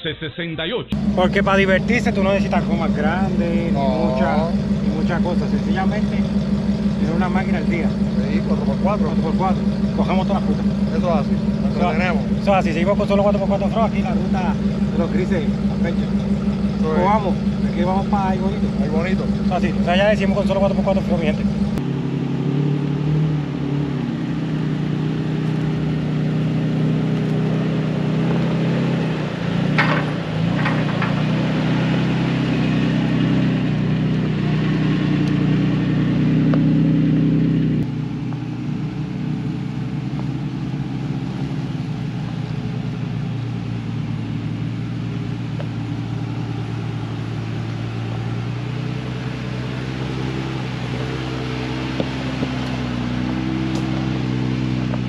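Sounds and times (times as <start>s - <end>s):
truck engines droning: 0.9s - 55.0s
sharp knocks: 29.6s - 31.9s.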